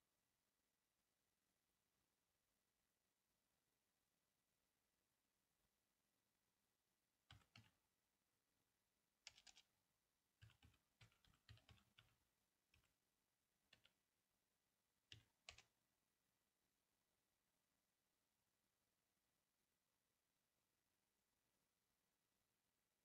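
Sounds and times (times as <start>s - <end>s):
typing on computer keyboard: 7.3s - 7.8s, 9.2s - 9.7s, 10.4s - 13.0s, 13.7s - 14.0s, 15.1s - 15.7s.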